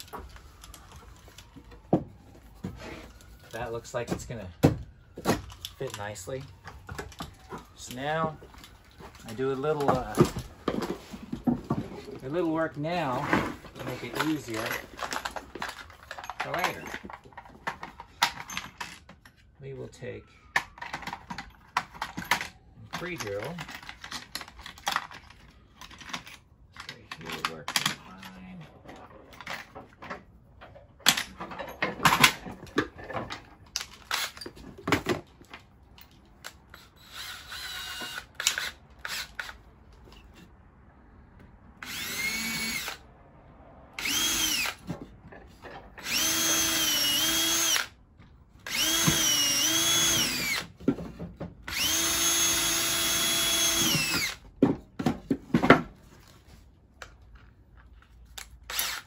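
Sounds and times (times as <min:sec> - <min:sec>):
tools clicking and knocking: 0:13.8 - 0:19.4, 0:20.5 - 0:40.5, 0:44.0 - 0:56.0
cordless drill whine: 0:36.7 - 0:39.6, 0:41.8 - 0:43.0, 0:44.0 - 0:44.8, 0:46.0 - 0:47.9, 0:48.7 - 0:50.7, 0:51.7 - 0:54.4, 0:58.7 - 0:59.0.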